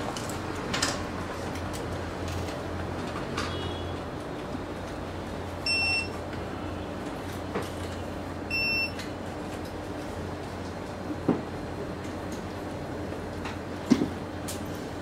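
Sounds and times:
short electronic beeps: 5.7s - 6.1s.

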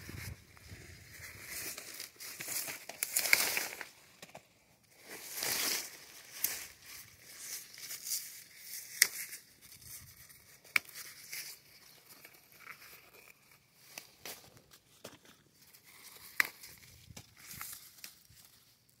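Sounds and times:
leaves and husks rustling: 0.0s - 19.0s
stems snapping: 1.6s - 4.4s, 7.4s - 9.4s, 16.2s - 18.3s.

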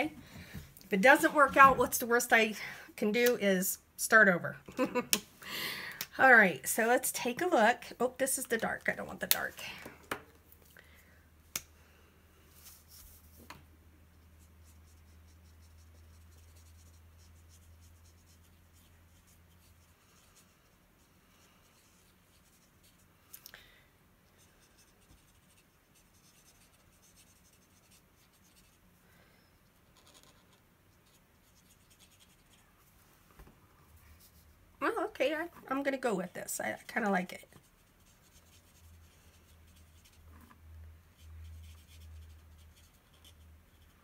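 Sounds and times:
marker scratching on card: 14.4s - 20.6s, 24.4s - 28.8s, 29.9s - 32.6s, 37.4s - 40.3s, 41.2s - 44.0s.

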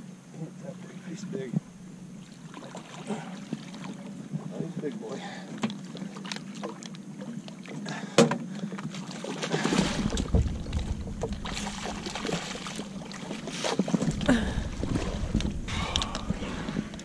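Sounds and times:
fish thrashing and splashing: 8.8s - 17.0s.

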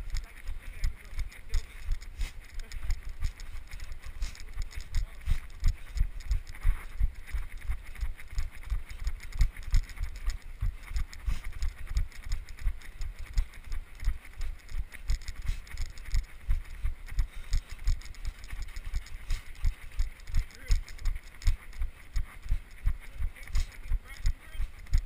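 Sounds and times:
running footsteps: 0.0s - 25.0s.

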